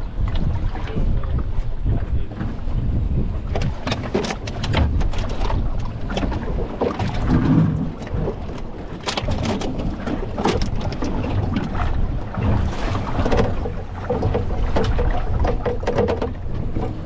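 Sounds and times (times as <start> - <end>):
boat rumble in choppy water: 0.0 - 17.0
wind buffeting microphone: 0.0 - 17.0
knocks and clatter: 13.2 - 17.0.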